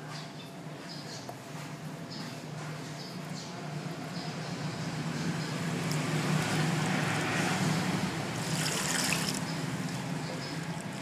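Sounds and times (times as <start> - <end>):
water pouring and splashing: 5.7 - 11.0.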